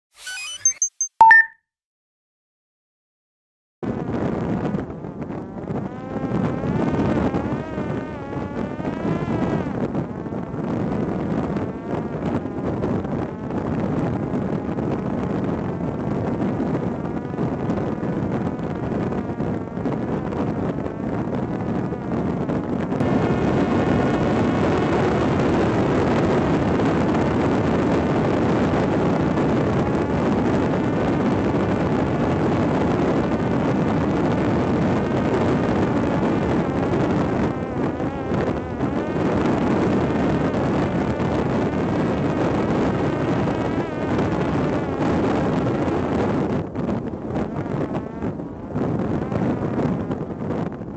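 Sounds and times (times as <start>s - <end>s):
wind noise on microphone: 3.8s - 50.9s
drone motor and propeller whirring: 3.9s - 32.4s, 33.1s - 48.4s
drone propeller motor whining: 4.7s - 14.1s, 35.7s - 40.4s.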